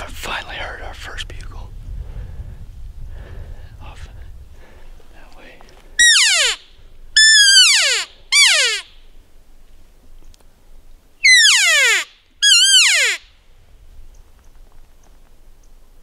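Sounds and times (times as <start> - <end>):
elk call mews: 6.0 - 6.6, 7.2 - 8.9, 11.2 - 13.2.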